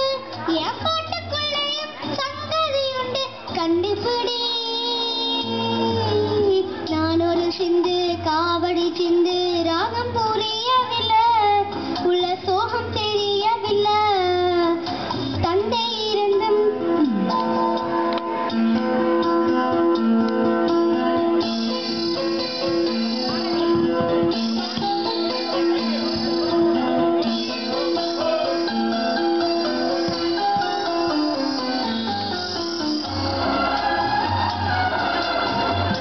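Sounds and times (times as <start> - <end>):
girl singing into a microphone: 0.0 - 17.1
instrumental backing with bass: 0.0 - 36.0.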